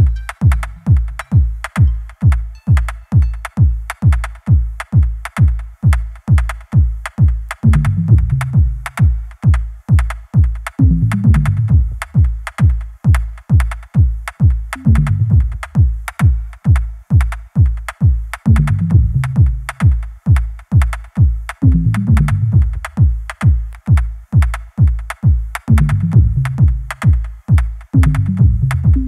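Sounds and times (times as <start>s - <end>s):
electronic bass line: 0.0s - 3.9s, 7.6s - 9.1s, 10.8s - 12.3s, 14.8s - 15.9s, 18.5s - 19.8s, 21.6s - 23.0s, 25.7s - 27.0s, 28.0s - 29.0s
fast kick drum beat: 0.0s - 29.0s.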